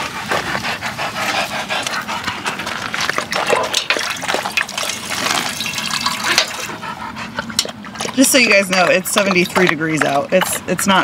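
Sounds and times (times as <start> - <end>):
dog panting: 0.0 - 3.7, 6.2 - 11.0
dog lapping water: 0.0 - 11.0.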